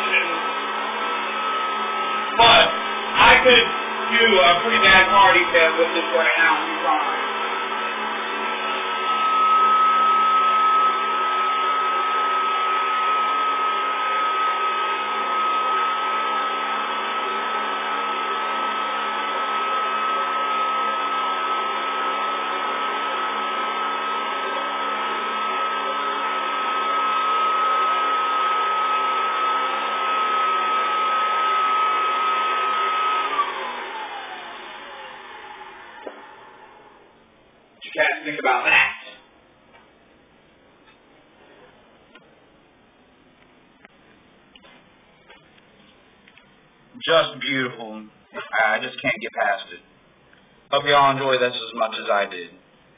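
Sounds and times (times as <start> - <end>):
vacuum motor winding down: 0.0 - 39.3
vacuum cleaner running: 0.0 - 40.0.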